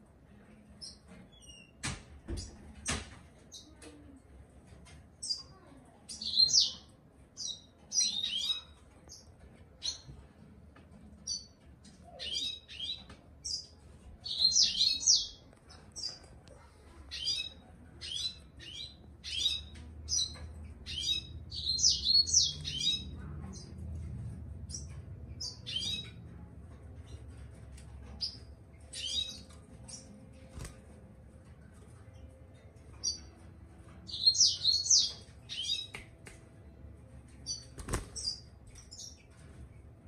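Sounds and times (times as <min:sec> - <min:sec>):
canary singing high chirps: 0:05.2 - 0:10.2, 0:11.2 - 0:23.8, 0:24.6 - 0:26.3, 0:28.0 - 0:30.4, 0:32.2 - 0:36.0.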